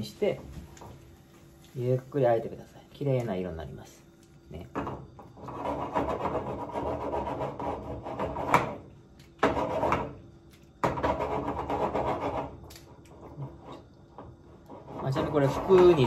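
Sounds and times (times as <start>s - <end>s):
spatula scraping frying pan: 5.4s - 10.2s.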